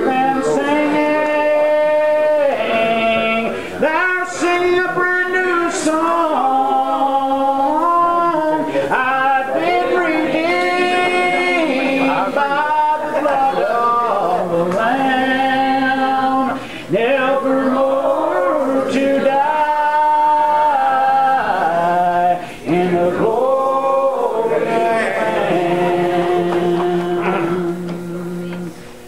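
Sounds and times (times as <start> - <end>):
congregation singing a hymn: 0.0 - 28.9.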